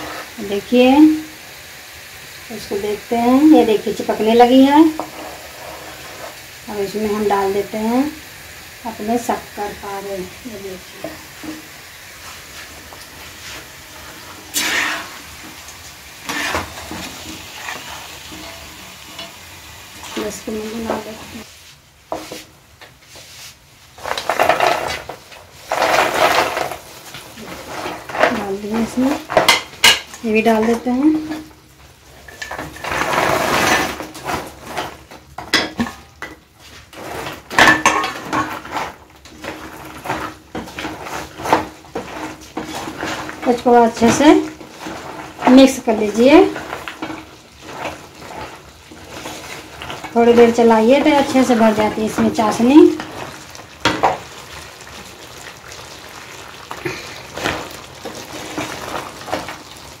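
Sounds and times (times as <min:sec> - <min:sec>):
spatula scraping pan: 0:00.0 - 0:01.0, 0:02.7 - 0:08.2, 0:08.8 - 1:00.0
food sliding into syrup: 0:12.1 - 0:15.6
sugar syrup bubbling: 0:53.0 - 1:00.0.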